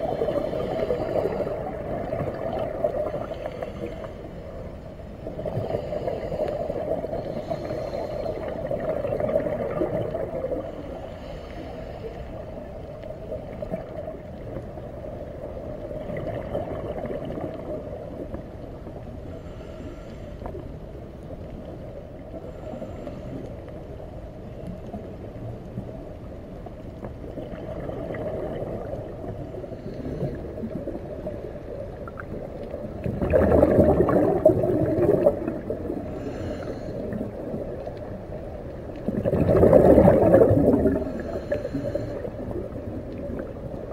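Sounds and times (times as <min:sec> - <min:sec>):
rush of exhaled bubbles: 0:00.0 - 0:04.1, 0:05.3 - 0:10.9, 0:15.8 - 0:18.1, 0:27.4 - 0:43.9
low underwater rumble: 0:00.0 - 0:43.9.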